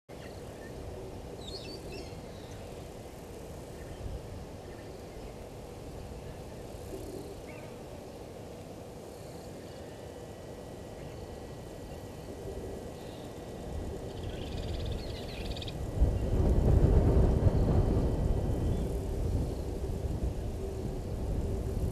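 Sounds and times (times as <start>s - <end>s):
faint bird calls: 6.2s - 7.9s.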